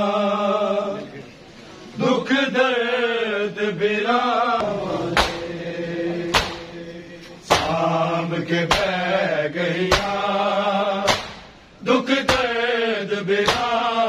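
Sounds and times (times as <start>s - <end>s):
men chanting a lament: 0.0s - 1.3s, 2.0s - 14.0s
men slapping their chests: 5.2s - 5.5s, 6.3s - 7.8s, 8.6s - 9.0s, 9.9s - 10.2s, 11.1s - 11.6s, 12.2s - 12.5s, 13.4s - 13.9s.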